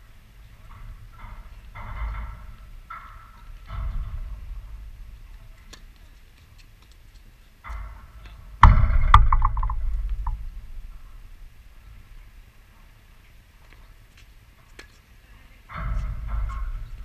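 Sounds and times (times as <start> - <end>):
low rumble: 0.0 - 6.4, 8.1 - 13.6, 15.8 - 17.0.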